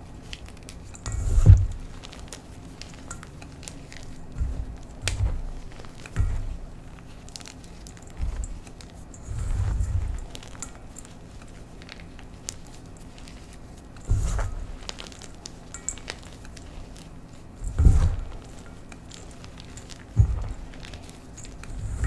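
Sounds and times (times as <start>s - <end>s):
chalk crumbling by hand: 0.0s - 22.0s
hands pressing dull thumps: 3.6s - 7.0s.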